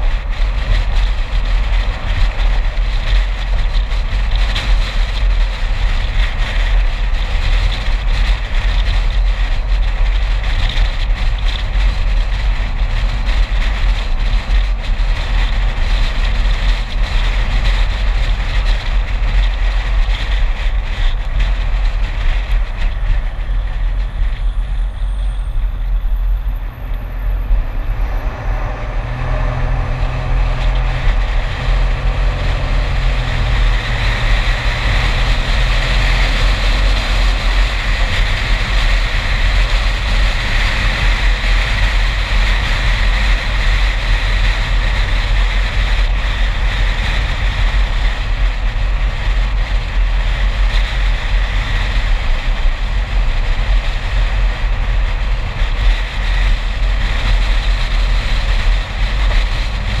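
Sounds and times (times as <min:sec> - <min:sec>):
car engine: 0:00.0 - 1:00.0
road noise: 0:00.0 - 1:00.0
wind buffeting microphone: 0:00.0 - 1:00.0.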